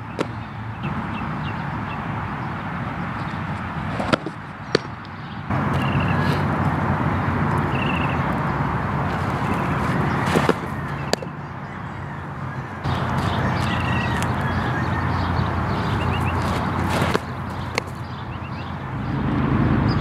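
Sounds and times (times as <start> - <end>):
ball smacking into catcher's mitt: 0.2 - 0.4, 10.2 - 11.3, 16.4 - 18.0
wind gusting on microphone: 12.6 - 20.0.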